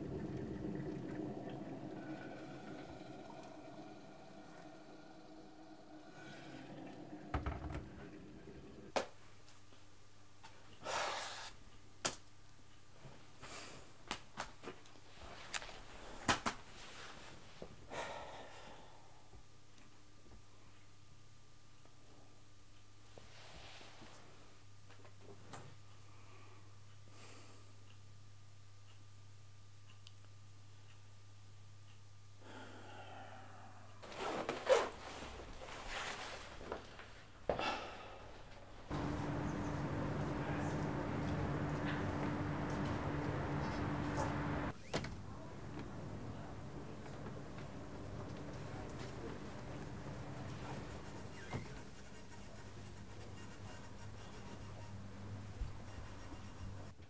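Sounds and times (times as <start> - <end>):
man huffing breaths: 17.9 - 19.2, 37.5 - 38.6
leather jacket rustling and creaking: 34.0 - 37.2.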